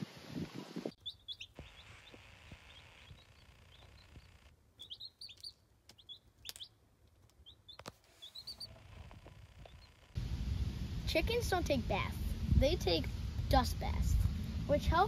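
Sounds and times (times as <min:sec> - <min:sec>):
chicks peeping: 0:00.9 - 0:06.8, 0:07.4 - 0:10.0.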